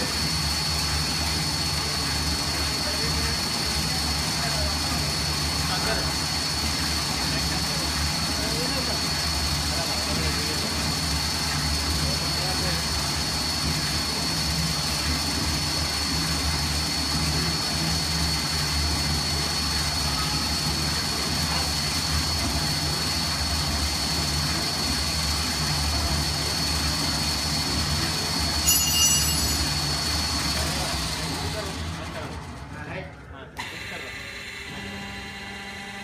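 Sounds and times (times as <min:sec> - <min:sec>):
blender motor humming with whine: 0:33.6 - 0:36.0.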